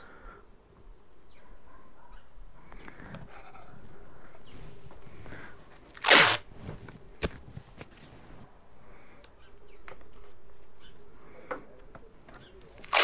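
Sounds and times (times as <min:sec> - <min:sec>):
tape ripped off roll: 0:05.9 - 0:08.0, 0:12.8 - 0:13.0.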